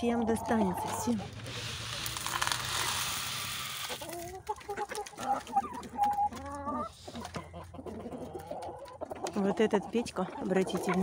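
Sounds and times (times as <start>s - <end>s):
chickens clucking: 0.0s - 11.0s
feed pouring from plastic bucket: 1.3s - 4.2s.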